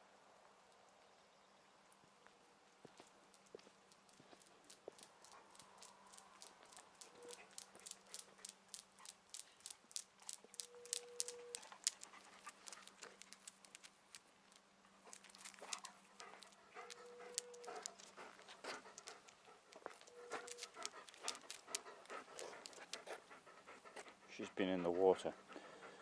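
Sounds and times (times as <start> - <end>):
dog claws clicking on asphalt: 2.8 - 23.3
dog panting: 4.4 - 13.8, 15.0 - 26.0.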